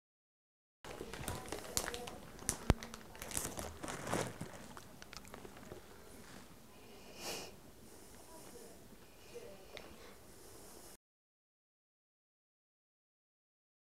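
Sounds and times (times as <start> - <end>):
plastic snack bag crinkling: 0.9 - 6.4.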